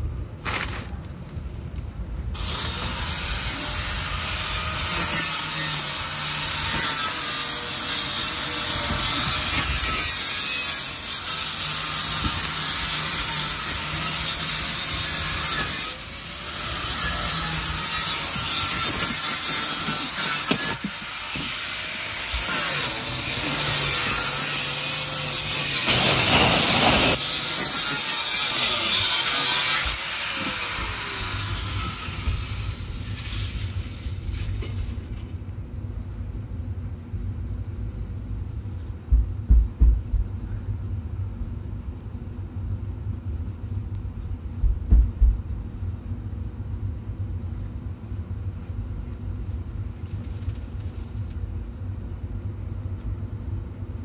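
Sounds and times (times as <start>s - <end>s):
saw cutting wood: 2.4s - 33.9s
low rumble: 34.0s - 47.4s
thumps: 39.1s - 40.4s, 44.6s - 45.5s.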